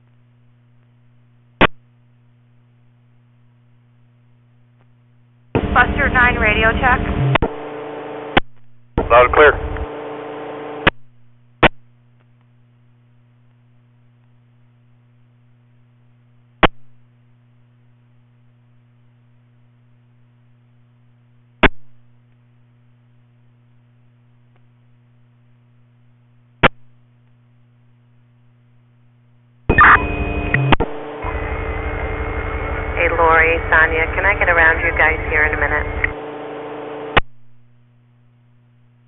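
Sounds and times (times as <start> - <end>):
faint mains hum: 0.0 - 39.0
burst of radio noise: 5.6 - 8.4, 9.0 - 10.9, 29.7 - 37.2
radio transmission: 5.6 - 8.4, 9.0 - 10.9, 30.9 - 37.2
steady high tone: 29.7 - 37.1.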